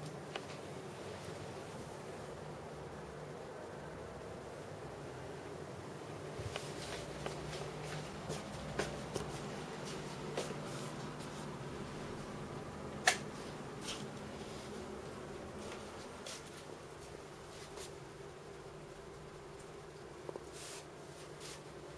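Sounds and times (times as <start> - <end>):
faint steady hum: 0.0 - 21.9.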